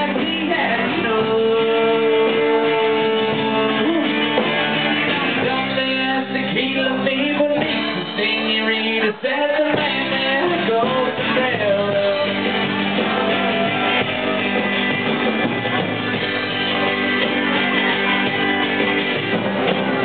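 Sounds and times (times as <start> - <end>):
person singing: 0.0 - 14.7
strummed acoustic guitar: 0.0 - 20.0
upright bass: 0.0 - 20.0.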